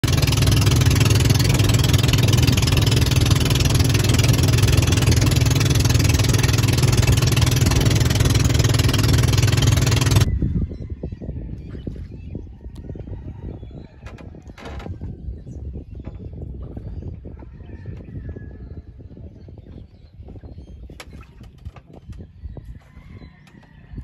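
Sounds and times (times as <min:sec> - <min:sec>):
engine running steadily: 0:00.0 - 0:10.3.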